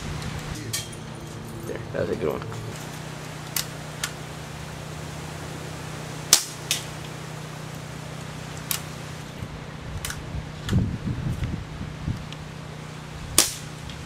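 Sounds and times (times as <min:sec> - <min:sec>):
low hum: 0:00.0 - 0:14.0
air pistol pops: 0:13.4 - 0:13.7.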